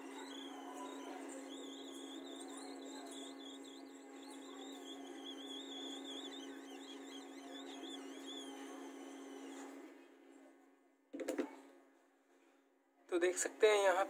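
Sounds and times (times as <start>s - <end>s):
hot air station blowing: 0.0s - 9.8s.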